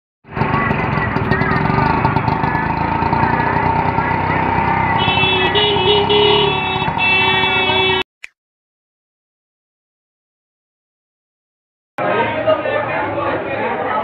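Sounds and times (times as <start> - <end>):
street traffic: 0.2 - 8.1, 12.0 - 14.0
horns: 4.9 - 8.1.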